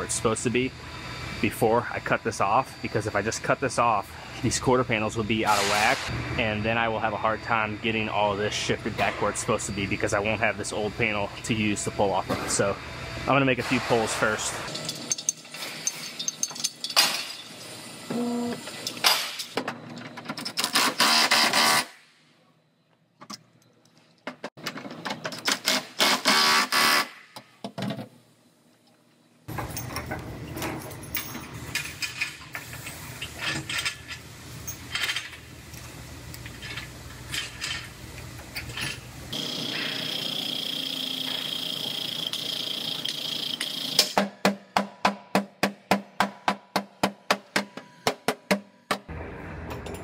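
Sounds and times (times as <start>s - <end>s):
steady low hum: 0.0s - 18.6s.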